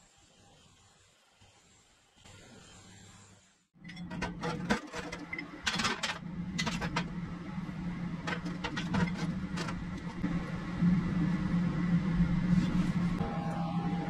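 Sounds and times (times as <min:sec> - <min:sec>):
steady low hum: 0:03.8 - 0:14.0.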